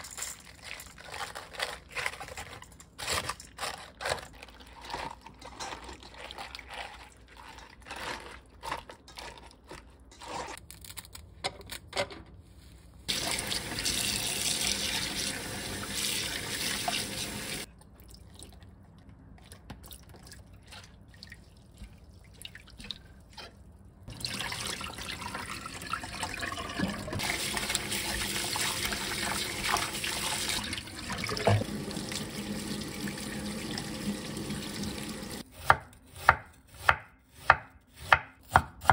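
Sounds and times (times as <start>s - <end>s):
tap water running into sink: 13.1s - 17.7s, 24.1s - 35.4s.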